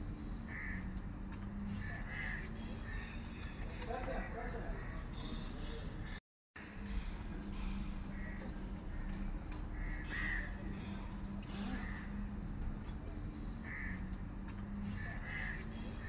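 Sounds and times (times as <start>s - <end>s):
steady low hum: 0.0s - 16.0s
crows cawing: 0.4s - 1.0s, 1.6s - 5.7s, 6.8s - 12.4s, 13.2s - 14.1s, 14.7s - 16.0s.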